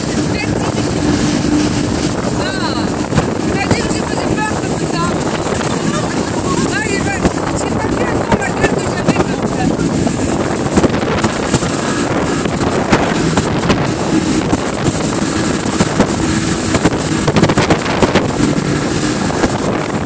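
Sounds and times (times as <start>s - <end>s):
outboard motor running: 0.0s - 20.0s
water rushing and splashing: 0.0s - 20.0s
wind buffeting microphone: 0.0s - 20.0s.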